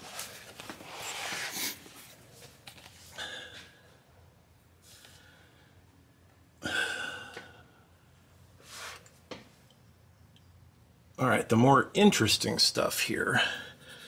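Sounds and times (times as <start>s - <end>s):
person breathing out and sighing: 6.6s - 7.8s.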